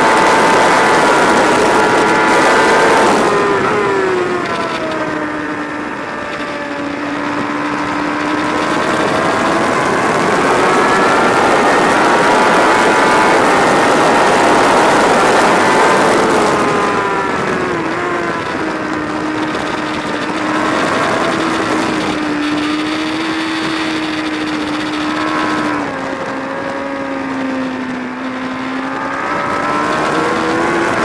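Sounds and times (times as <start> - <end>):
motorcycle engine revving: 0.0 - 31.0
wind rushing: 0.0 - 31.0.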